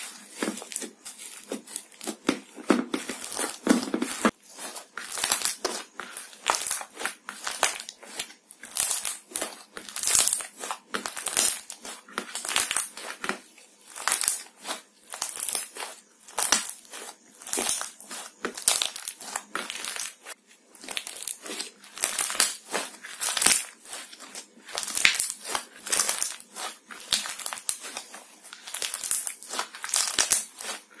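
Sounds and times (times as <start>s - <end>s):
slime squeezed with sticky pops: 28.6s - 30.7s.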